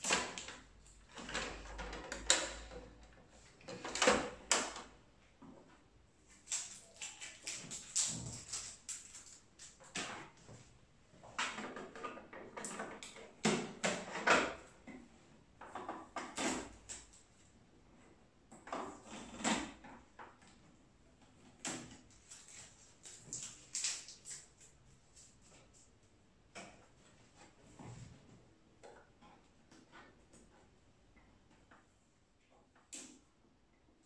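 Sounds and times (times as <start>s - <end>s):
tape peeling off plastic: 22.3s - 24.8s.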